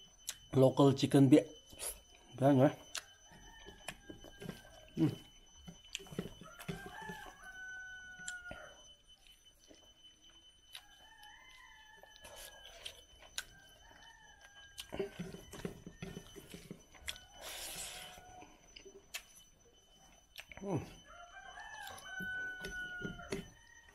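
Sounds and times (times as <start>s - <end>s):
rooster crowing: 2.9s - 5.3s, 6.0s - 9.0s, 10.7s - 18.7s, 20.6s - 23.9s.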